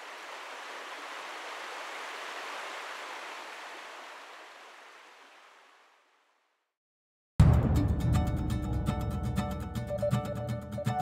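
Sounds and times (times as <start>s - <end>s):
water rushing: 0.0s - 6.4s.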